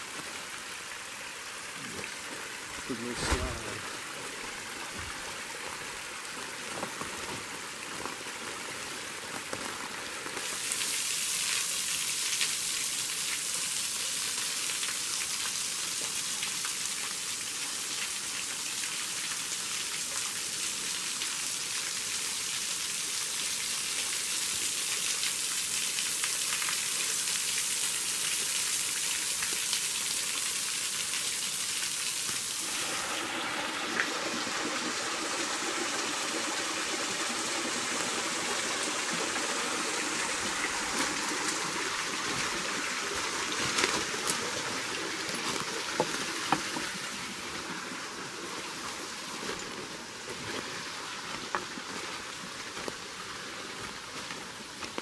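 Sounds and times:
waterfall spilling into pool: 0.0 - 55.0
streams splashing onto rock: 2.8 - 5.3
water sliding over rock: 2.8 - 8.6, 32.6 - 48.8.

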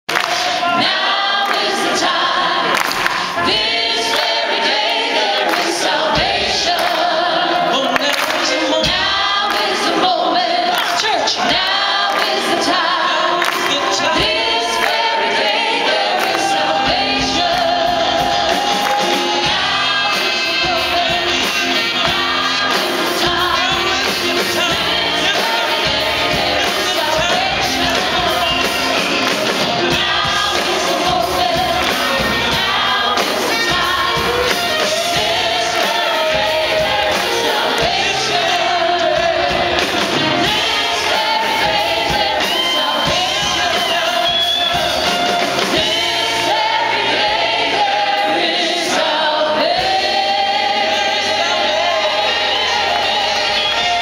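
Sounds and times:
choir singing liturgical music: 0.1 - 54.0
instrumental accompaniment: 11.4 - 54.0.

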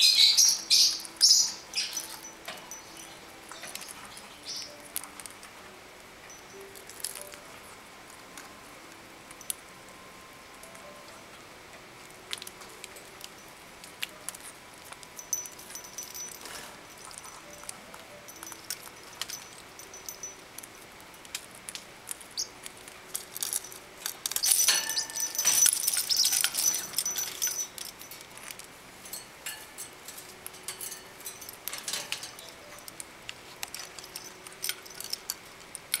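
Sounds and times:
birds clicking in wire cage: 12.3 - 36.0
clattering in cage: 15.2 - 20.4, 23.4 - 33.0.

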